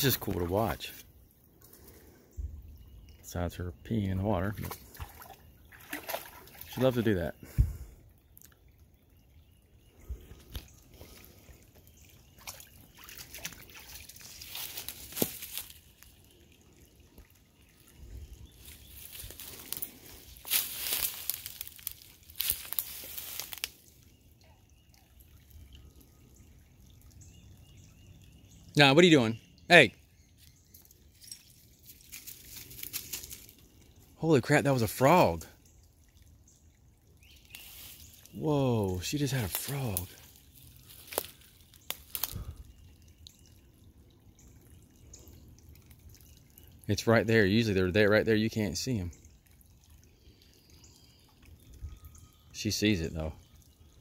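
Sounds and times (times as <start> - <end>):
water dripping: 0.0 - 54.0
rustling in dry leaves: 13.8 - 15.9, 18.6 - 23.8, 31.8 - 33.6, 37.5 - 38.4, 39.3 - 42.6.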